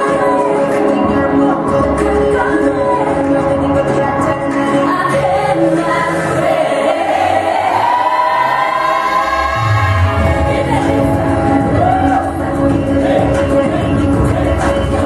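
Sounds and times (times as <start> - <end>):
pop song with voices singing: 0.0 - 15.0
heavy bass: 7.0 - 15.0.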